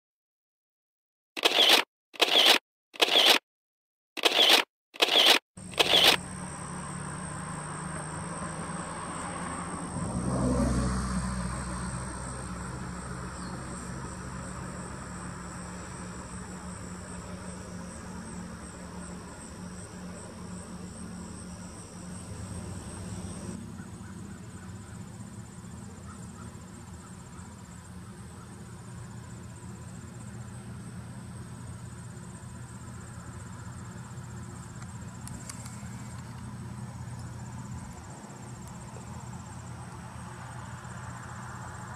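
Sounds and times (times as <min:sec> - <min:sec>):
camera shutter clicks: 0:01.4 - 0:03.4, 0:04.2 - 0:06.2
insects trilling: 0:04.2 - 0:41.9.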